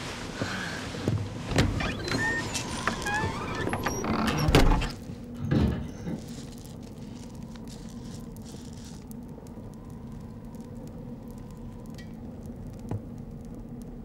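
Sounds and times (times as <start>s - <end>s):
short squeaks: 1.8s - 5.0s
bags rustling: 4.9s - 9.2s.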